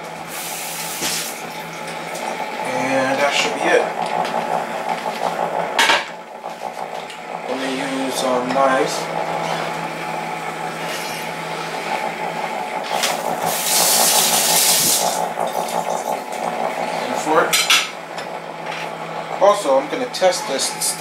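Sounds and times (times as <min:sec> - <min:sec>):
rotisserie oven humming: 0:00.0 - 0:21.0
hiss like running tap: 0:00.3 - 0:01.4, 0:12.8 - 0:16.0.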